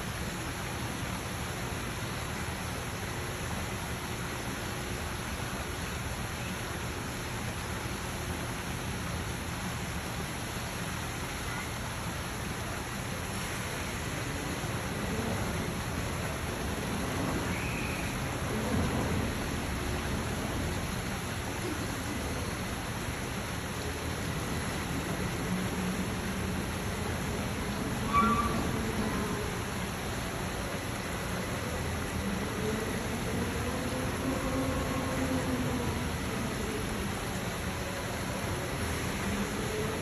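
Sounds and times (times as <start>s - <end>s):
outdoor background hiss: 0.0s - 40.0s.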